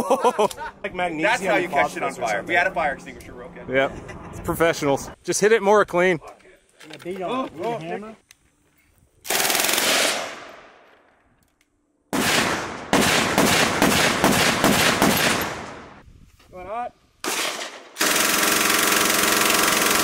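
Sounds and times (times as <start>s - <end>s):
rapid gunshots: 9.3s - 10.5s, 12.1s - 16.0s, 17.2s - 20.0s
automatic machine gun fire: 9.3s - 10.6s, 12.1s - 16.0s, 17.2s - 20.0s.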